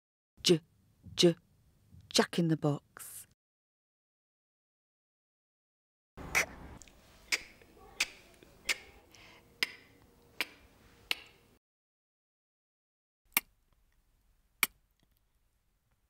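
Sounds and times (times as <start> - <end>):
person saying k sound: 7.3 - 11.2.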